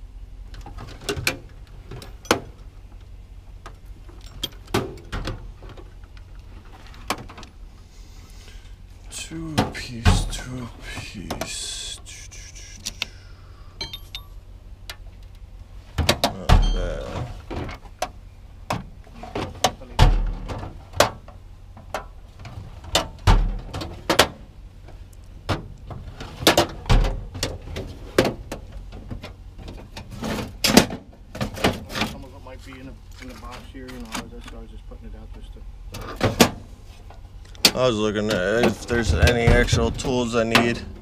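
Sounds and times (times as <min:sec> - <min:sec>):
tools clanking together: 0:13.8 - 0:14.4
heavy thuds: 0:38.6 - 0:41.0.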